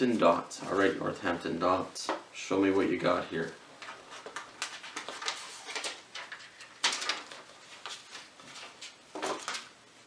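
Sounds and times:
tissue paper crinkling and rustling: 4.1s - 9.7s.

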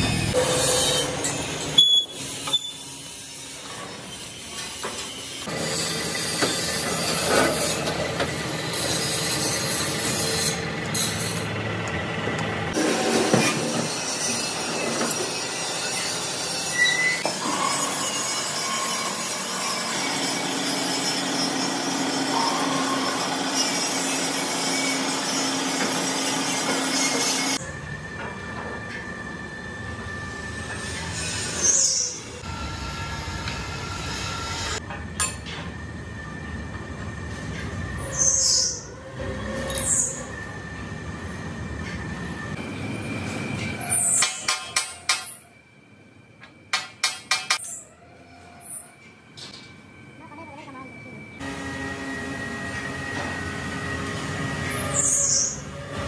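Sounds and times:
metal rubbing and scraping: 0.0s - 11.5s.

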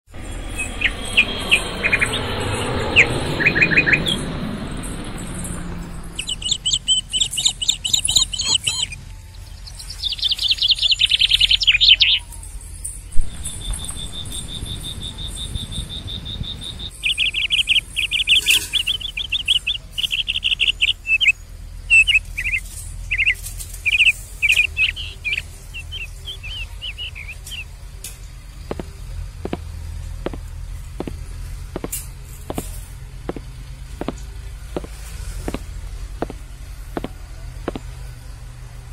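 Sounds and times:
steady high-pitched tone: 0.1s - 7.4s, 13.1s - 16.9s
small birds chirping: 0.2s - 4.2s, 5.4s - 38.9s.

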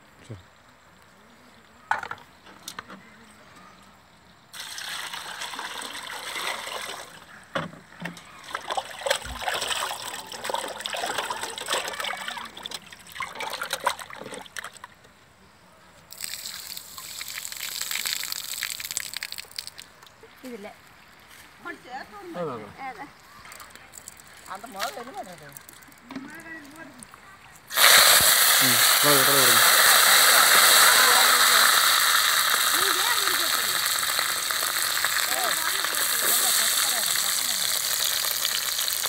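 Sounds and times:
water pouring onto ground: 4.5s - 7.2s, 8.4s - 14.9s, 16.1s - 20.2s, 23.5s - 27.1s, 27.7s - 39.0s
water splashing in a bowl: 4.6s - 7.2s, 8.3s - 14.9s, 16.1s - 20.0s, 27.7s - 39.0s.

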